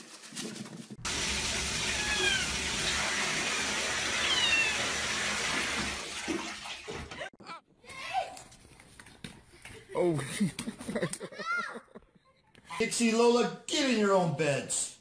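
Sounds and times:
cat meowing: 0:01.9 - 0:02.6, 0:04.2 - 0:04.8.

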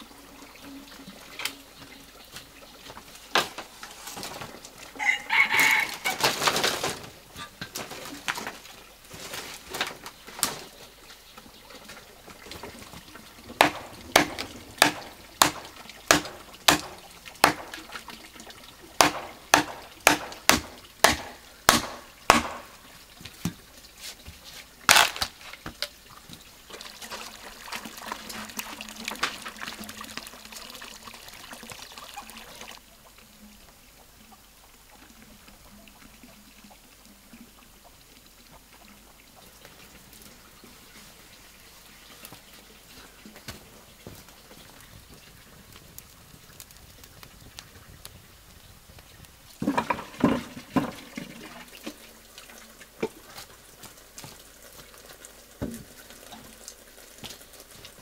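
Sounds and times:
water trickling: 0:00.0 - 0:58.0
rooster crowing: 0:05.0 - 0:06.4
sharp knocks: 0:13.6 - 0:17.8, 0:19.0 - 0:22.8.

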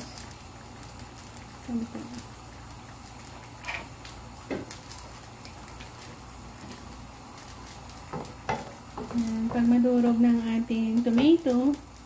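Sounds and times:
broth bubbling in a wok: 0:00.0 - 0:12.0.

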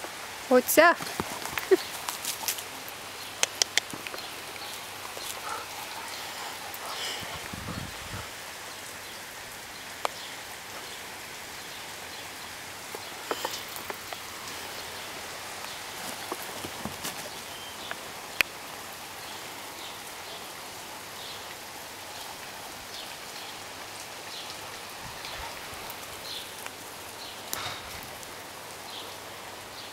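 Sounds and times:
rustles: 0:00.0 - 0:19.9
rain falling on ground: 0:00.0 - 0:29.9
sharp clicks: 0:03.4 - 0:04.2.

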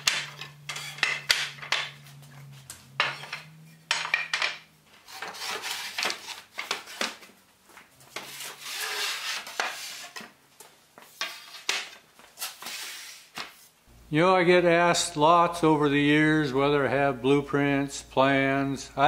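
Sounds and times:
wooden boards knocking: 0:00.0 - 0:02.1, 0:03.0 - 0:04.6
wooden boards scraping: 0:00.0 - 0:10.4, 0:11.0 - 0:13.6.

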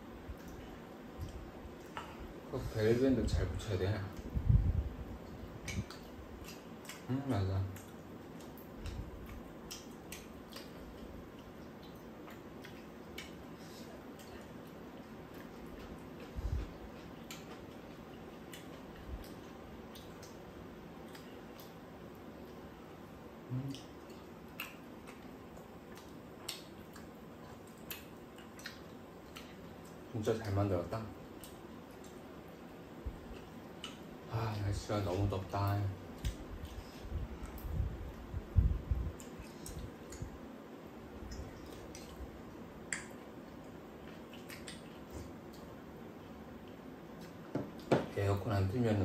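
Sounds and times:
soft chewing: 0:00.1 - 0:47.9
person humming: 0:23.5 - 0:23.8.

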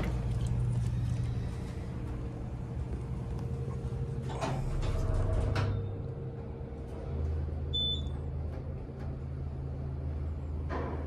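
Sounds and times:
steady low hum: 0:00.0 - 0:11.0
elevator door sliding shut: 0:04.2 - 0:06.0.

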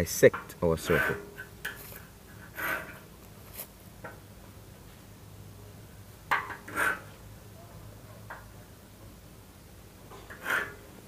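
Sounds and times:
divider points scraping steel: 0:00.8 - 0:03.7, 0:06.7 - 0:07.0, 0:10.3 - 0:10.8.

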